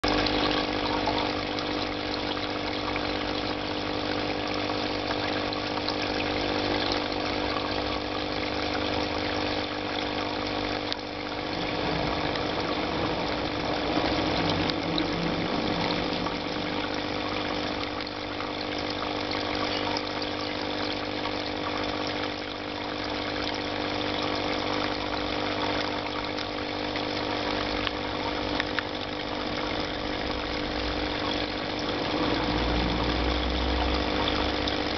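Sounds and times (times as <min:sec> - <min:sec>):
aquarium pump hum: 0:00.0 - 0:34.9
watery hiss: 0:11.2 - 0:20.1, 0:29.2 - 0:34.4.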